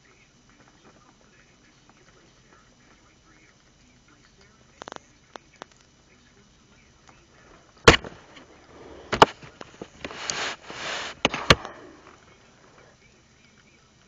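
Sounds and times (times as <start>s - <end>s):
rustling of bedding: 7.4s - 12.8s.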